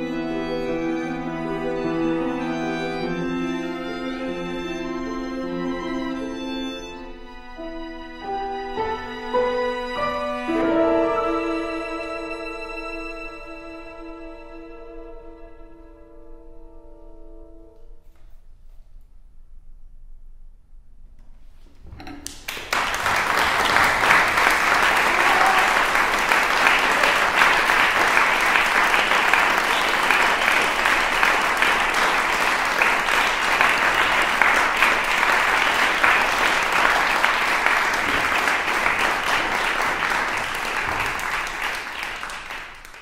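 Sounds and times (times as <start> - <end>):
audience applause: 22.3 - 43.0.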